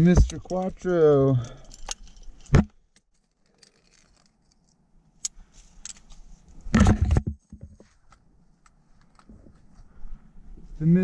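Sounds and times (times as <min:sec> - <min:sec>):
metal climbing gear clinking: 0:00.0 - 0:06.3.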